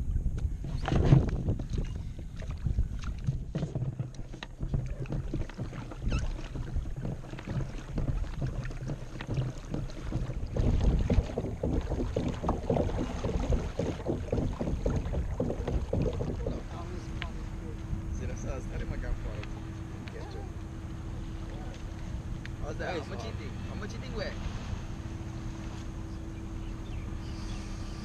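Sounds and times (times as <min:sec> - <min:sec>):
wind buffeting microphone: 0:00.0 - 0:27.6
water splashing against kayak hull: 0:00.4 - 0:28.0.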